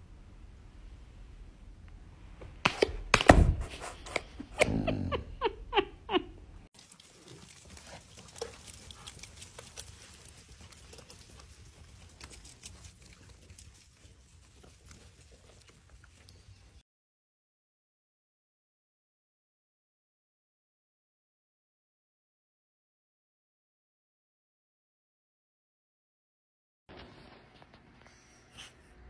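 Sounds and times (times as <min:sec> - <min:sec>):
dog grumbling: 0:04.6 - 0:05.4
quiet rustling with faint ticks: 0:06.8 - 0:16.8.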